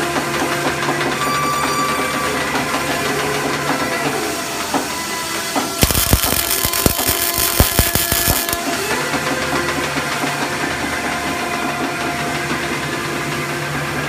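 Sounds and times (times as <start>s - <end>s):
machine humming: 5.8s - 8.7s
welding arc crackling: 5.8s - 8.7s.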